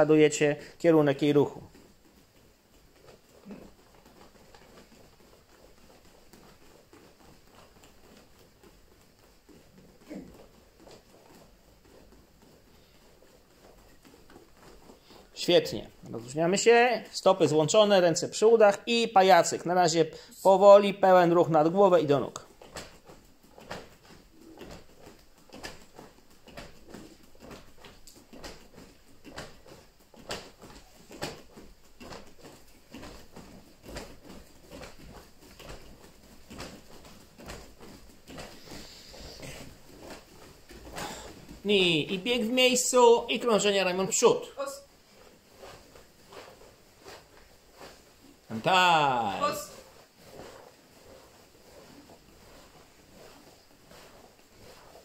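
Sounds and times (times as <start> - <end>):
bare feet shuffling on mats: 0.0 - 55.0
swish of cotton clothing: 22.2 - 55.0.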